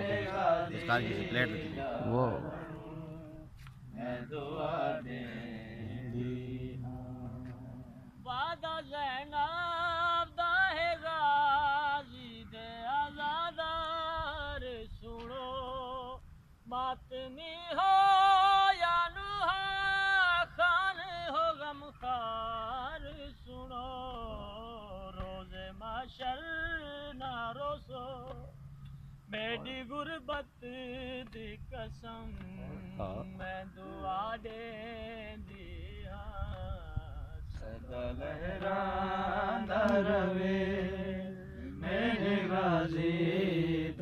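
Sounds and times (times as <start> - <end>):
man chanting a lament: 0.0 - 13.8, 29.3 - 44.0.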